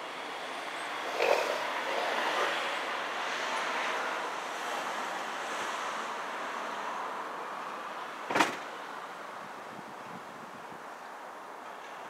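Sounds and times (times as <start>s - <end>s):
sharp knock: 8.3s - 8.6s
outdoor rushing noise: 8.3s - 8.8s.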